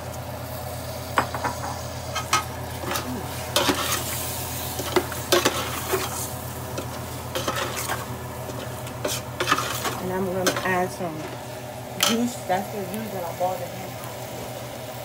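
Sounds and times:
sizzling roux: 0.0s - 15.0s
steady low hum: 0.0s - 15.0s
metal spoon scraping pot: 7.3s - 10.7s.

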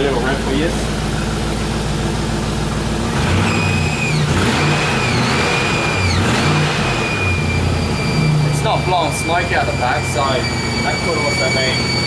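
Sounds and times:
engine idling and revving: 0.0s - 12.0s
high whistle from belts: 7.0s - 12.0s.

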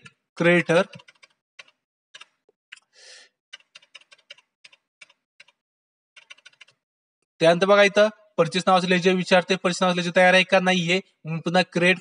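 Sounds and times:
computer keyboard keys tapping: 0.9s - 2.8s, 3.5s - 5.6s, 6.2s - 6.8s.

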